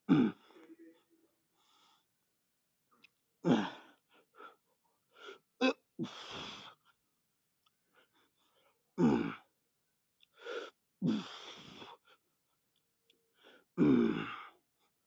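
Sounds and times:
man breathing hard: 3.5 - 7.0, 10.3 - 12.2
man grunting exhales: 13.8 - 14.4.

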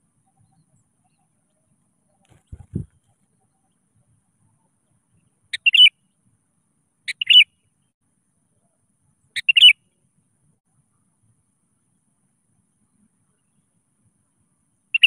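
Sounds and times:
bulbul calling: 5.2 - 6.0, 7.1 - 7.6, 9.4 - 9.8.

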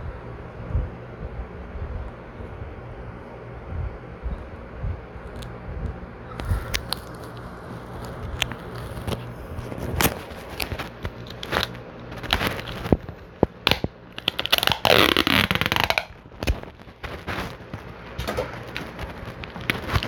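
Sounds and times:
plastic wrapping crinkling: 6.4 - 20.0.

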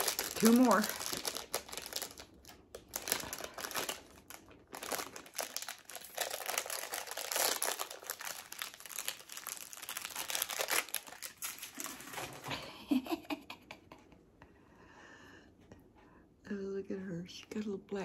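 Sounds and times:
plastic packaging crinkling: 0.0 - 12.5.

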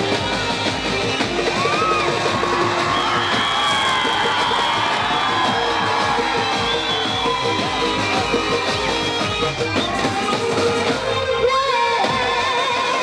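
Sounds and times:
live band with keyboard: 0.0 - 13.0
woman singing into microphone: 10.8 - 13.0.

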